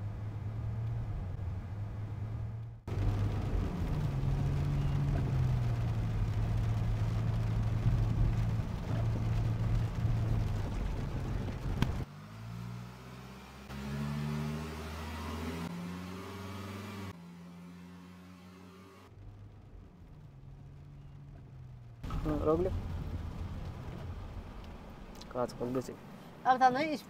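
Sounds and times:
car engine and tyre hum: 0.0 - 27.0.

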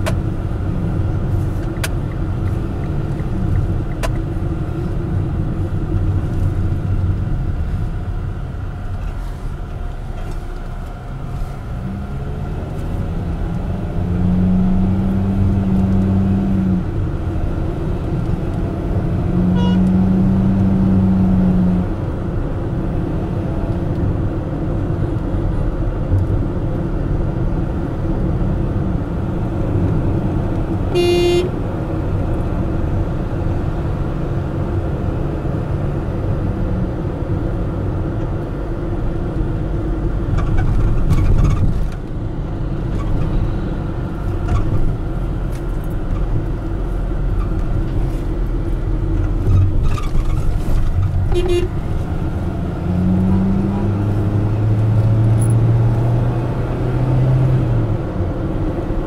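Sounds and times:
road and engine noise in car: 0.0 - 59.0
car horn beep: 19.5 - 20.0, 30.9 - 31.6, 51.3 - 51.8.

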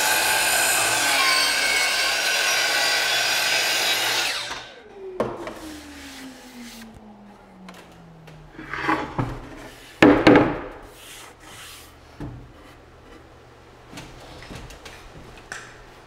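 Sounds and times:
saw blade winding down hum: 0.0 - 8.4.

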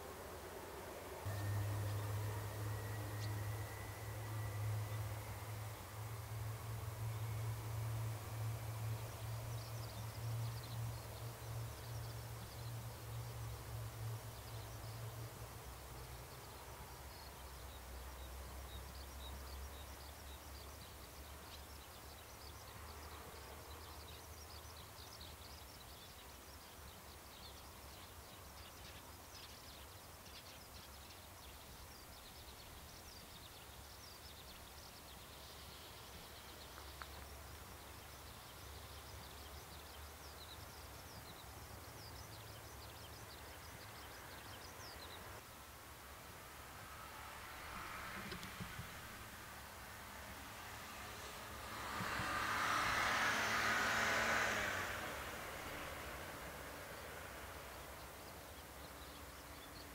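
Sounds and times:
low steady rumble: 0.0 - 21.5
small birds chirping: 1.2 - 46.2, 48.1 - 59.9.

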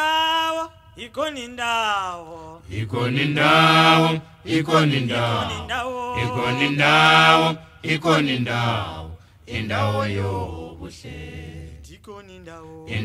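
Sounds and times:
male choir singing a cappella: 2.4 - 12.0, 12.7 - 13.0.

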